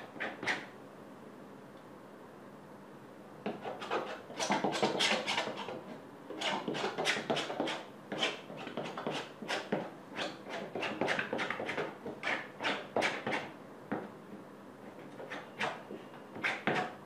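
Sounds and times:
painting knife scraping canvas: 0.0s - 0.7s, 3.5s - 13.5s, 14.9s - 17.0s.

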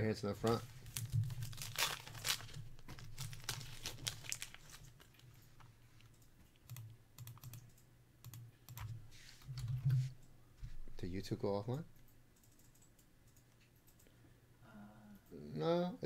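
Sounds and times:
cardboard cards clicking and rustling: 0.4s - 5.2s.

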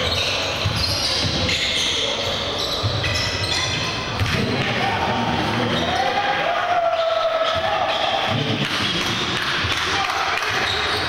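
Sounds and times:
sneaker squeaks: 0.0s - 4.4s, 5.6s - 6.0s, 6.9s - 9.1s, 10.5s - 11.0s
voices in a gym: 0.0s - 11.0s.

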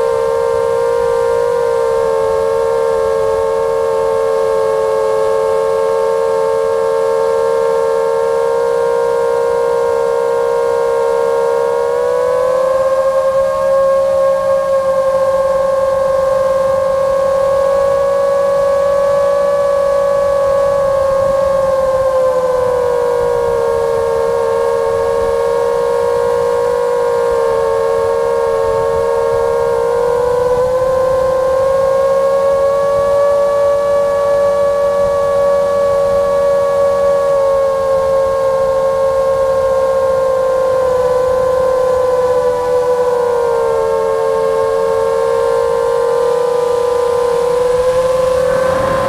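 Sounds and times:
quadcopter motors whining: 0.0s - 49.0s.

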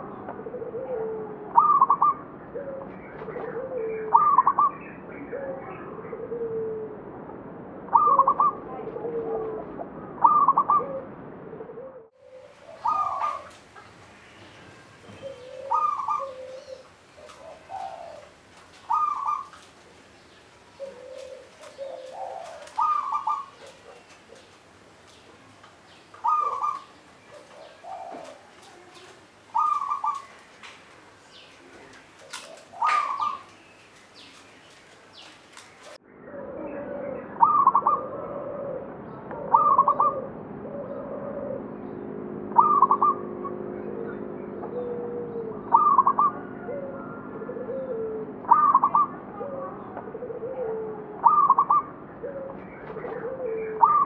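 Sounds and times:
dove cooing: 0.0s - 7.0s, 7.9s - 54.0s.

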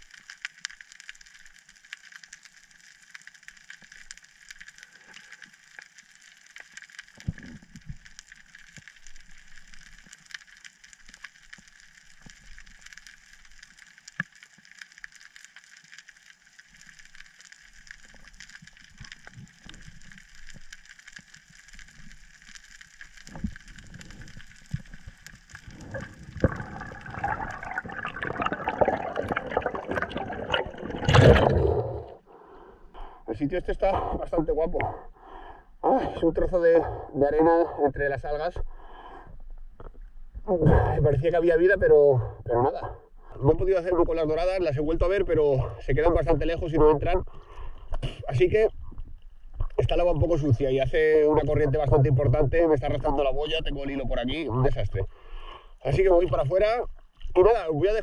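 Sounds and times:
small clicks: 0.0s - 26.6s
water rushing and bubbling: 16.5s - 35.0s
faint underwater hiss: 53.0s - 58.0s.

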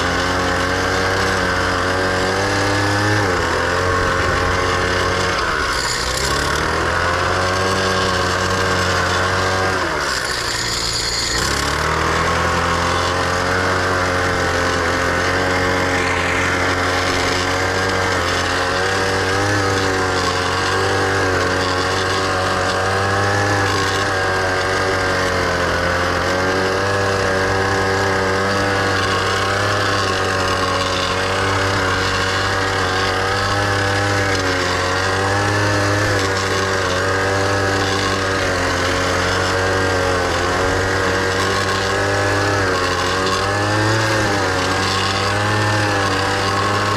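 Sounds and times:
tiller engine running hard: 0.0s - 46.9s.

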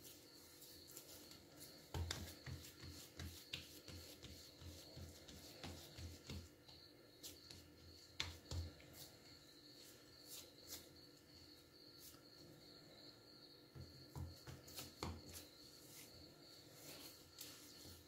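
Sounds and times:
soft thuds of dough patting: 1.0s - 9.4s, 13.7s - 16.2s.

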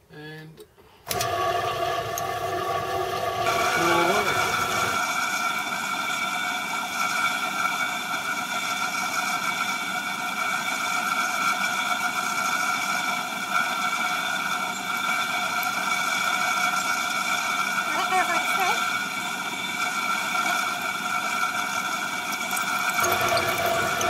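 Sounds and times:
milling machine motor whine: 1.1s - 24.0s
drill bit cutting aluminium: 13.9s - 24.0s.

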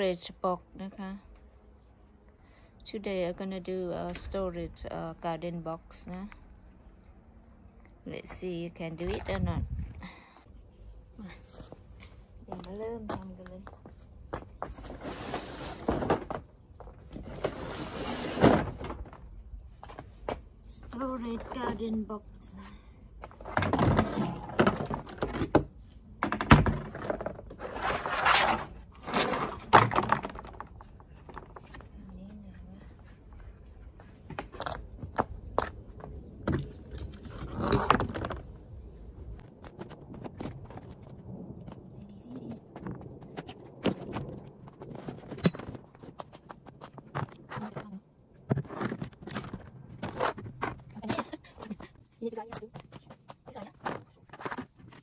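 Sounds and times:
plastic panels clacking on paving: 23.2s - 27.8s, 29.1s - 31.9s, 34.2s - 38.6s, 42.6s - 55.0s
plastic scraping: 26.2s - 31.9s.

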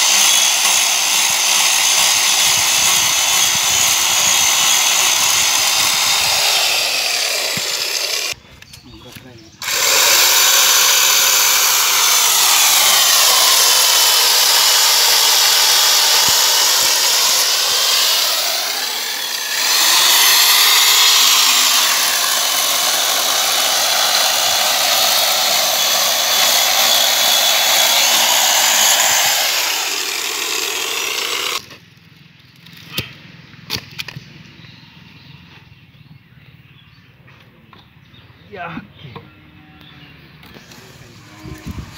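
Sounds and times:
electric chainsaw cutting log: 0.0s - 8.4s, 9.6s - 31.8s, 40.4s - 41.9s.

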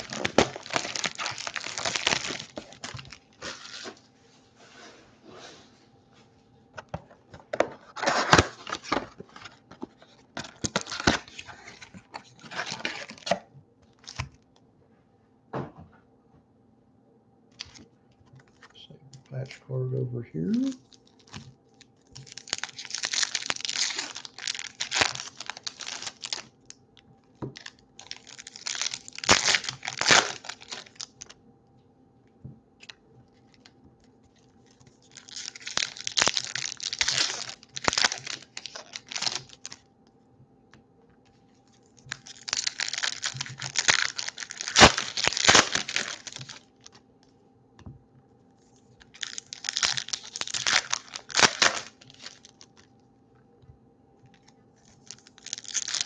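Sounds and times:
foil wrappers tearing and crinkling: 0.0s - 4.0s, 7.3s - 13.4s, 17.6s - 17.8s, 20.6s - 21.5s, 22.1s - 26.8s, 27.4s - 31.4s, 34.3s - 39.8s, 42.0s - 47.0s, 49.0s - 52.9s, 54.4s - 56.0s.

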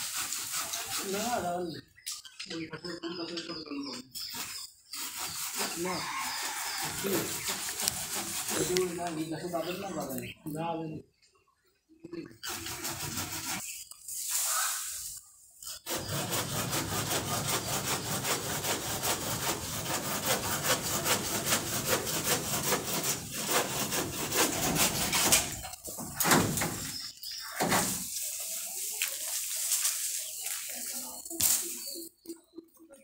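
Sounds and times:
hand saw cutting branch: 0.0s - 1.4s, 4.3s - 9.2s, 12.4s - 13.6s, 15.7s - 26.8s.

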